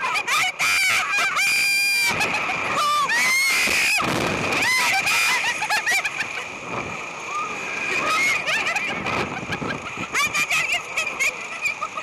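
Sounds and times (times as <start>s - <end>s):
women screaming with laughter: 0.0s - 6.6s, 7.3s - 12.0s
wind on the microphone: 2.1s - 5.0s.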